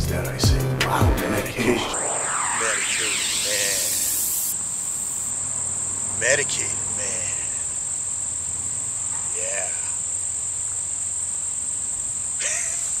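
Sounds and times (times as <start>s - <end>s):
man's voice: 0.0s - 3.9s.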